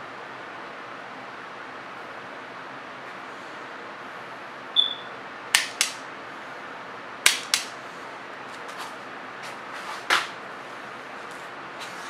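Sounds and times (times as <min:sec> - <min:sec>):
wire strippers snapping: 0:05.5 - 0:06.0, 0:07.2 - 0:07.8.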